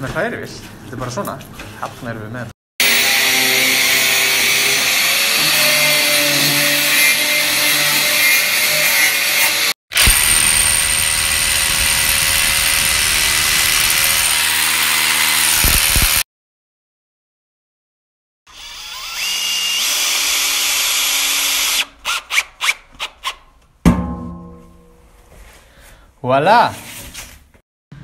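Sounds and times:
angle grinder running: 2.8 - 16.2
electric hammer chiselling concrete: 2.8 - 16.2.

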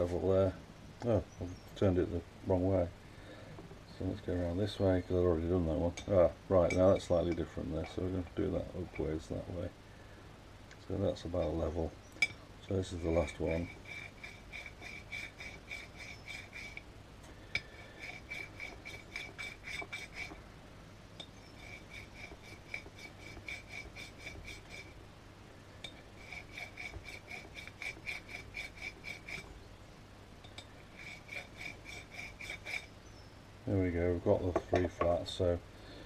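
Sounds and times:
metal file ringing clinks: 30.4 - 30.8.

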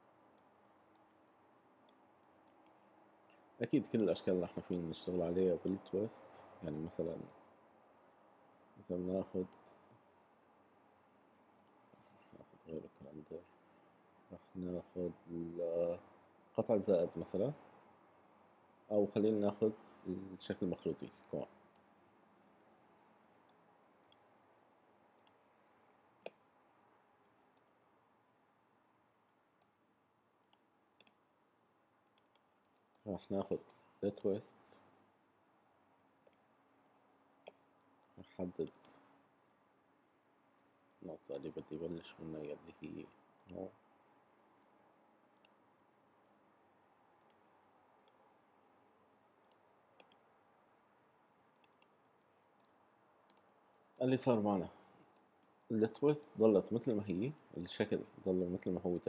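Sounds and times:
room hiss: 0.0 - 59.0
computer mouse clicks: 0.3 - 3.4, 9.4 - 9.8, 23.2 - 24.3, 25.1 - 25.4, 27.2 - 27.7, 29.2 - 29.8, 30.4 - 31.2, 32.0 - 33.0, 37.4 - 39.1, 43.4 - 44.7, 45.3 - 45.6, 47.2 - 47.4, 48.0 - 48.2, 49.4 - 50.3, 51.5 - 54.1.

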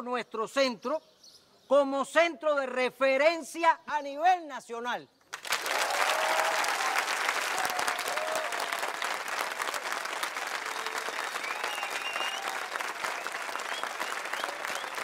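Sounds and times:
crowd applauding: 5.3 - 15.0.

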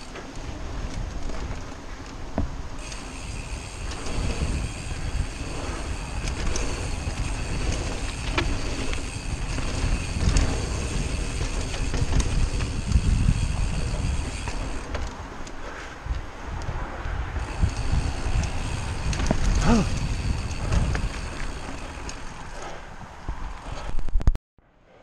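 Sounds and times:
bike tyres rumbling on dirt: 0.0 - 24.0
wind on microphone: 0.0 - 24.4.

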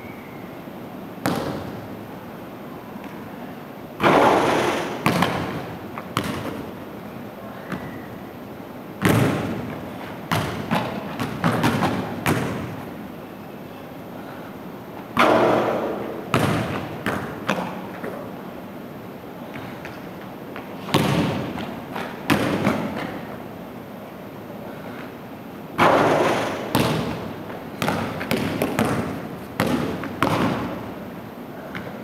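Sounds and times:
basketball bouncing on wooden floor: 1.2 - 1.7, 4.0 - 6.6, 9.0 - 9.7, 10.3 - 12.7, 16.3 - 17.8, 20.8 - 23.2, 25.8 - 30.8
basketball hitting hoop: 1.2 - 1.8, 4.0 - 6.7, 9.0 - 9.7, 10.3 - 12.8, 15.2 - 17.8, 20.8 - 23.1, 25.8 - 30.8.

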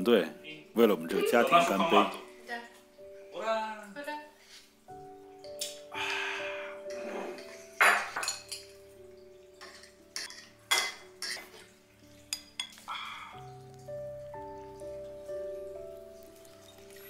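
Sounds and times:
cutlery clinking on plates: 6.9 - 8.8, 9.6 - 12.9.

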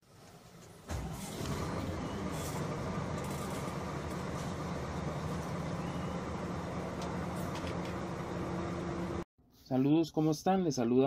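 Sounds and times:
diesel engine idling: 0.8 - 9.2.

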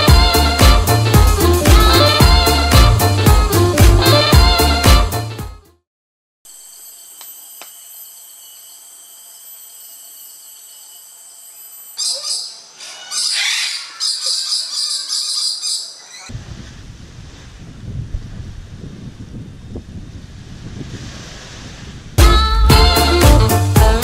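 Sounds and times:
insects droning: 6.5 - 16.3
birds chirping and squawking: 11.6 - 16.3.

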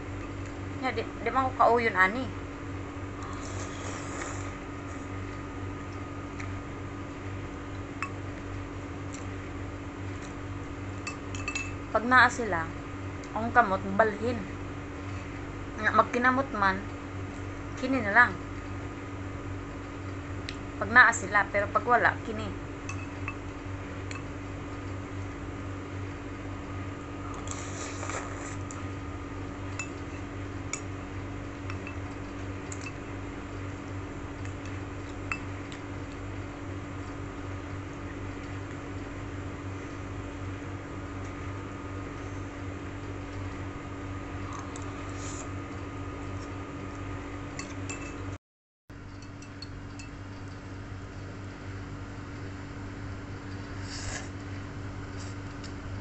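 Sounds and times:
steady low hum: 0.0 - 56.0
slurping noodles: 3.2 - 5.1, 27.3 - 28.8, 53.7 - 54.4.

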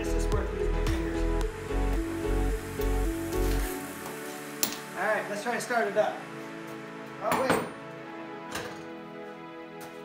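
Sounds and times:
music with steady bass beat: 0.0 - 4.3.

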